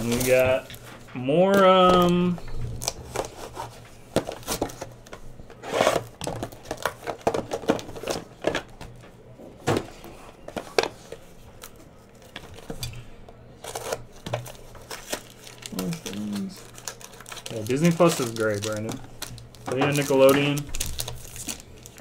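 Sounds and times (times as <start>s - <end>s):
foil packs tapping and clicking: 0.0s - 3.3s, 4.1s - 5.2s, 6.0s - 9.1s, 13.6s - 22.0s.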